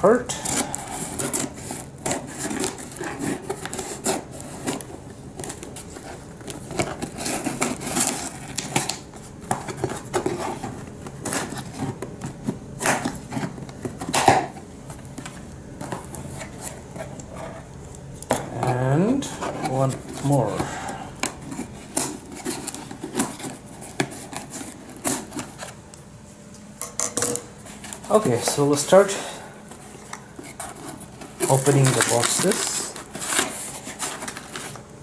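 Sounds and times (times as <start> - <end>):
scissors cutting packing tape: 0.3 - 14.6, 19.4 - 25.7, 30.1 - 34.8
cardboard rubbing: 0.4 - 17.7, 18.3 - 25.9, 27.6 - 34.9.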